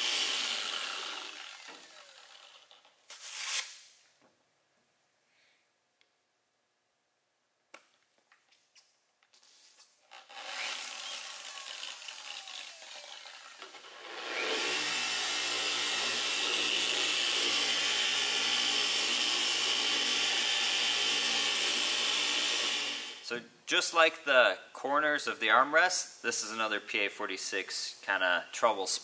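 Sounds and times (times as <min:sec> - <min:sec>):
polisher motor whirring: 0:00.0 - 0:02.8, 0:10.2 - 0:23.2.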